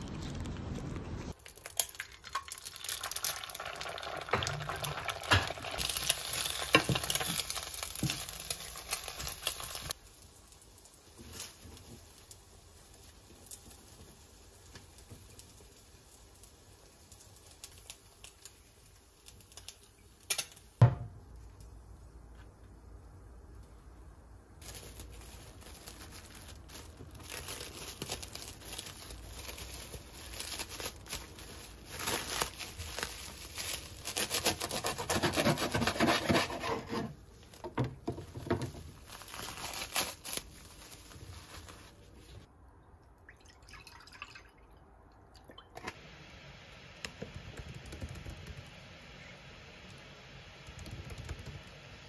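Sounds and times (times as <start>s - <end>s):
cling film crinkling: 0.0s - 20.7s, 24.6s - 36.5s, 38.4s - 42.5s.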